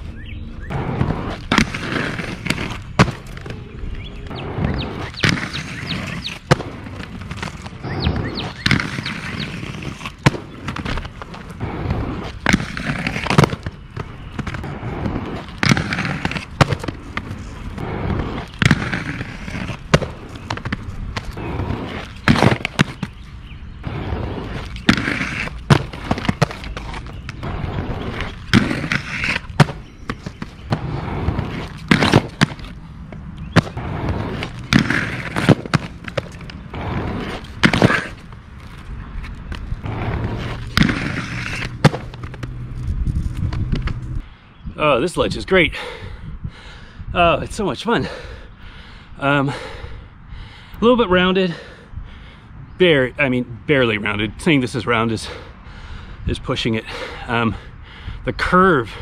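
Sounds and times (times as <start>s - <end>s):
inline skates rolling on concrete: 0.0s - 44.4s, 53.1s - 59.0s
skates grinding on concrete ledge: 0.5s - 44.2s
sharp clacks of skates landing: 0.7s - 3.6s, 4.2s - 23.2s, 23.8s - 44.1s.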